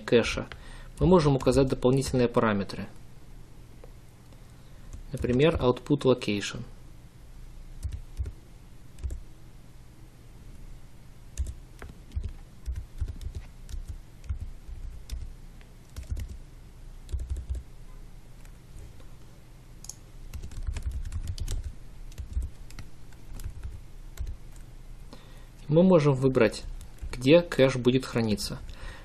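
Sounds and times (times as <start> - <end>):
steady low hum: 0.0 - 29.0
typing on keyboard: 4.9 - 5.6, 7.8 - 8.4, 11.4 - 15.3, 15.9 - 16.4, 17.1 - 17.6, 20.3 - 24.7, 26.8 - 27.2.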